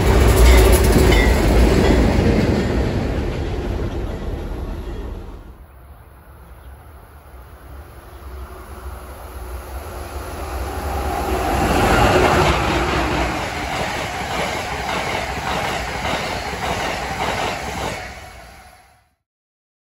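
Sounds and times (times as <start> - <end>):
train wheels clickety-clack: 0.0 - 5.2, 10.9 - 18.5
train locomotive rumble: 0.0 - 18.8.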